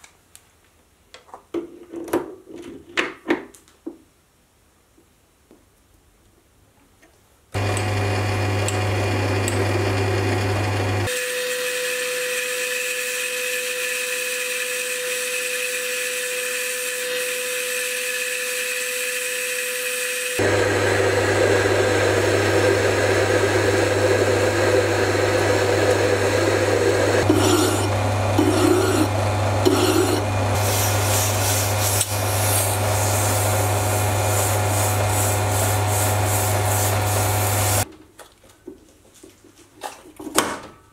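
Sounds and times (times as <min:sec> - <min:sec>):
lathe motor hum: 0:07.6 - 0:37.8.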